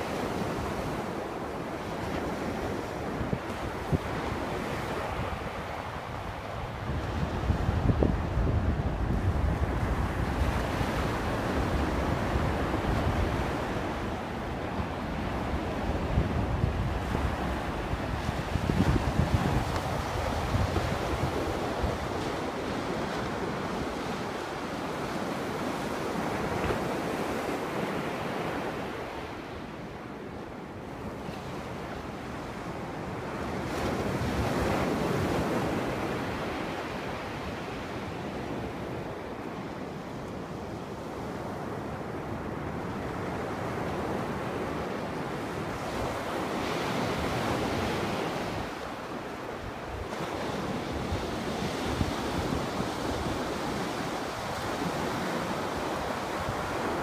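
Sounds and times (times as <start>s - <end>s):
wind rumbling on microphone: 0.0s - 24.5s.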